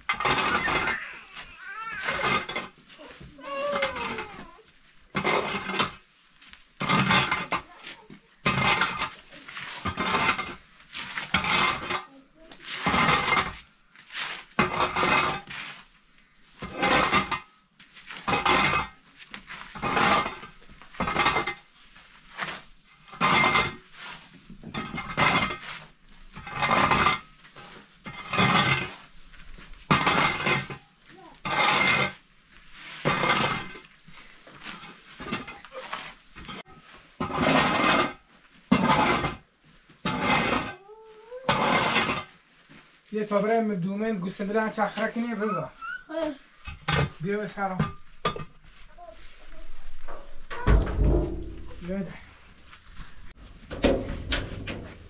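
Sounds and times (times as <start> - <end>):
pots and dishes clattering: 19.7 - 21.7, 29.9 - 30.8, 33.0 - 33.9, 49.9 - 52.3.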